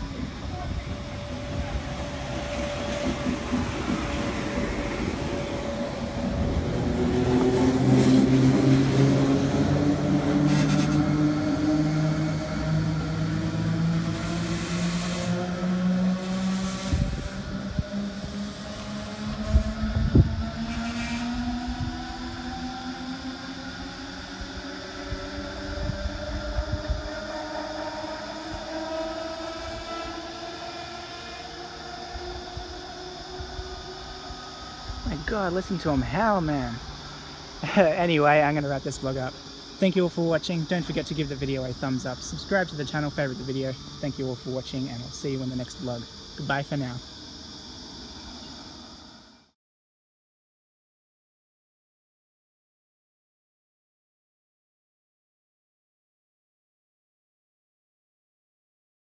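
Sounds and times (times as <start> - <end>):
wind rumble on microphone: 0.0 - 13.2, 15.3 - 22.8, 23.6 - 27.5
electric train motors whining: 0.0 - 39.8.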